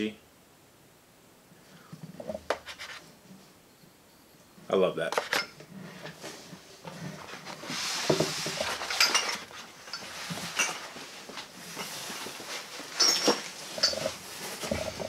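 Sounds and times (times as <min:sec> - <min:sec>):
cardboard and cloth rustling: 0:05.7 - 0:15.0.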